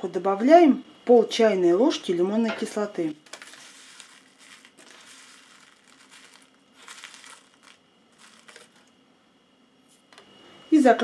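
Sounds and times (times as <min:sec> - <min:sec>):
paper sachet crinkling: 0:03.2 - 0:08.9
teaspoon scooping crystals: 0:03.2 - 0:08.9.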